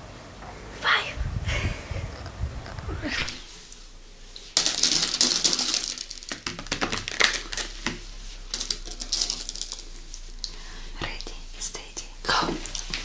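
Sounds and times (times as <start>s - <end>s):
candies rattling on paper plate: 3.7s - 11.4s.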